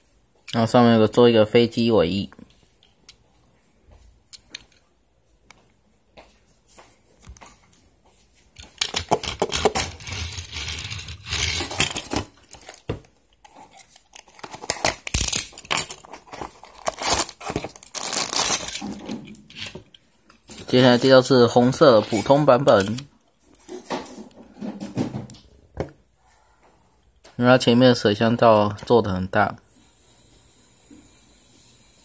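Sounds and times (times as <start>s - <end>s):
toy car rolling on wood: 8.8s - 12.3s.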